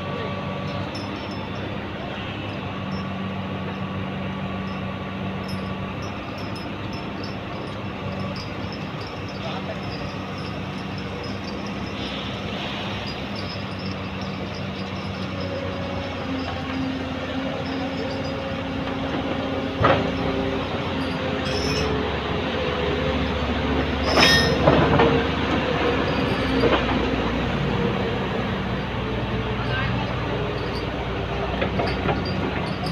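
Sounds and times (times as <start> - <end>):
heavy machinery engines: 0.0 - 32.9
sharp metal clanks: 0.6 - 3.1, 4.6 - 22.0, 24.0 - 25.2, 31.6 - 32.9.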